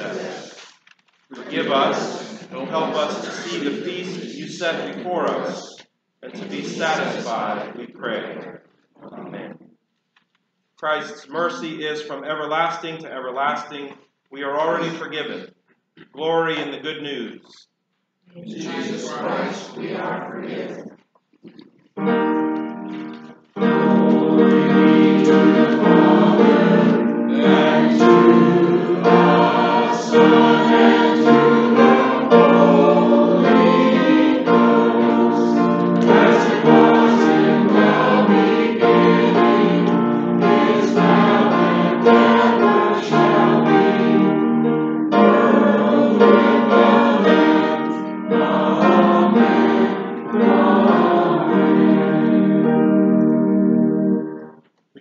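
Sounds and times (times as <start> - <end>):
congregation singing a hymn: 0.0 - 0.7, 1.3 - 8.6, 14.4 - 15.5, 18.4 - 20.9, 22.0 - 54.3
keyboard accompaniment: 21.5 - 54.6.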